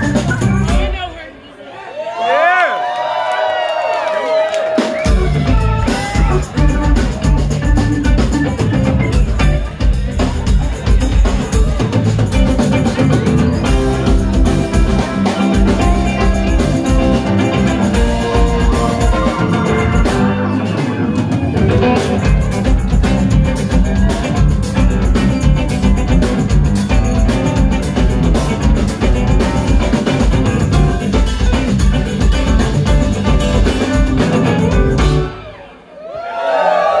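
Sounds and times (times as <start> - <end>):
electric bass: 0.0 - 0.9, 5.1 - 35.6
drum kit: 0.0 - 1.2, 4.6 - 35.8
electric guitar: 5.1 - 35.6
organ-toned keyboard: 5.4 - 10.0.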